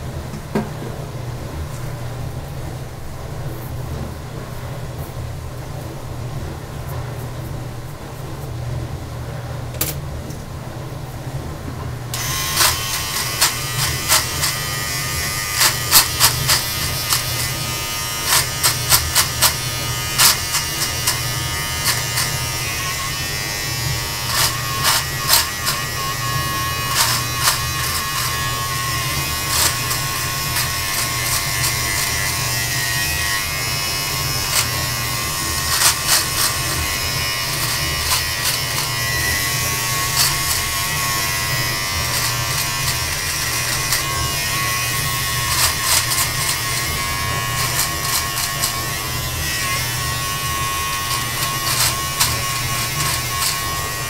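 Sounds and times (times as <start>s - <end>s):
electric beard trimmer humming: 12.1s - 54.0s
trimmer blades crackling through hair: 12.2s - 54.0s.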